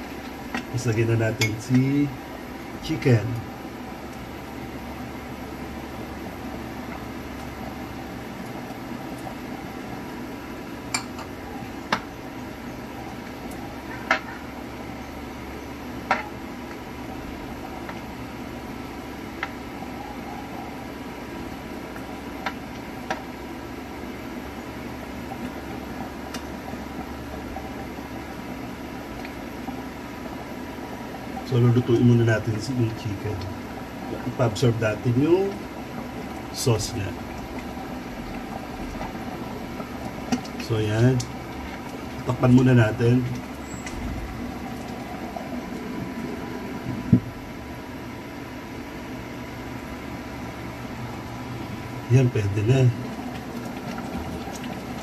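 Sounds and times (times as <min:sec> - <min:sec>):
steady hum: 0:00.0 - 0:55.0.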